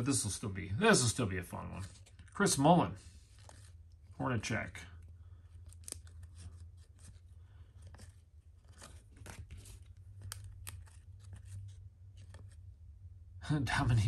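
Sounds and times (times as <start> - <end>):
cards sliding and scraping: 1.7 - 4.1, 5.0 - 12.7.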